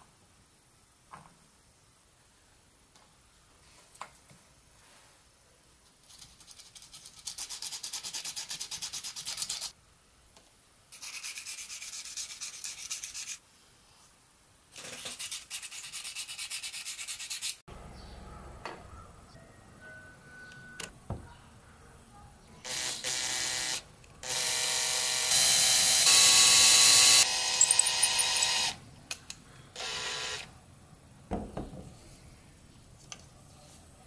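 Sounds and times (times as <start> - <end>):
sandpaper rasping on wood: 6.1 - 9.7, 11.0 - 13.4, 15.0 - 17.6.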